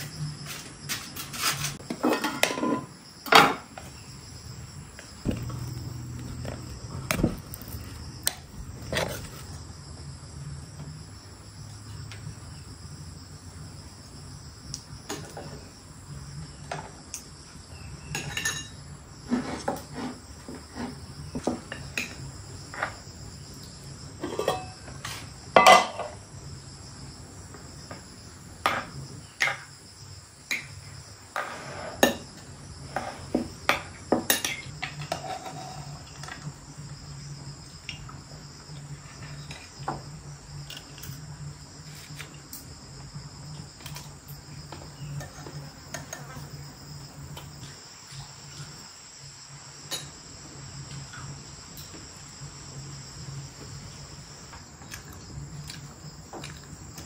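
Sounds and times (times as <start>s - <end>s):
dishes and utensils clinking: 0.9s - 3.7s, 18.1s - 18.8s, 24.2s - 26.2s
insect chirring: 2.9s - 19.3s, 34.4s - 57.0s.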